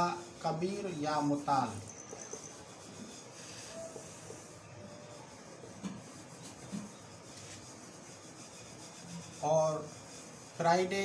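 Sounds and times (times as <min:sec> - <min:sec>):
marker scratching on whiteboard: 0:00.0 - 0:11.0.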